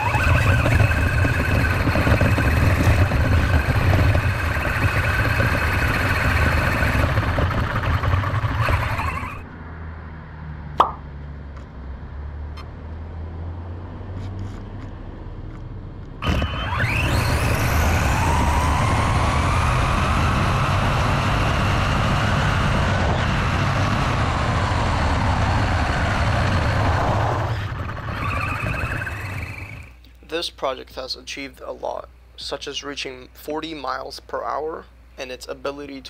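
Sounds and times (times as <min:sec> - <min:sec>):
rc car motor whining: 0:00.0 - 0:09.5, 0:16.2 - 0:30.0
rushing wind: 0:00.0 - 0:09.5, 0:16.1 - 0:30.0
road noise: 0:00.0 - 0:30.4.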